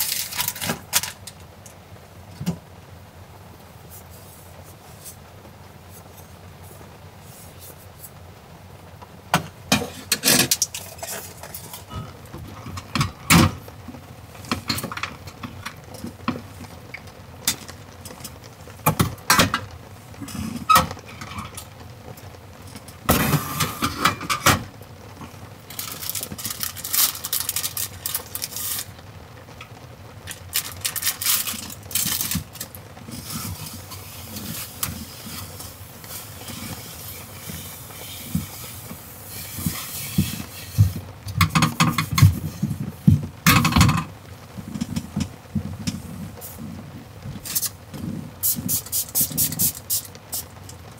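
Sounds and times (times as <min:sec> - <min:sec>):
plastic packet rustling: 0:00.0 - 0:01.6, 0:10.0 - 0:19.7, 0:25.2 - 0:50.9
steady rain: 0:00.0 - 0:50.9.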